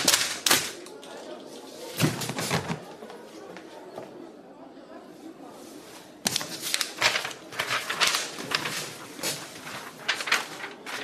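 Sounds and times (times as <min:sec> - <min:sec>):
paper and clothing rustling: 0:05.5 - 0:11.0.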